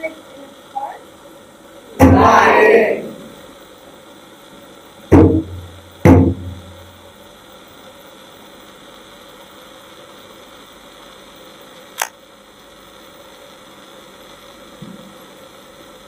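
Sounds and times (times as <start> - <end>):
steady low hum: 0.0 - 16.0
heavy thump on wooden stage: 2.0 - 2.3, 5.1 - 6.6
sharp click: 12.0 - 12.2.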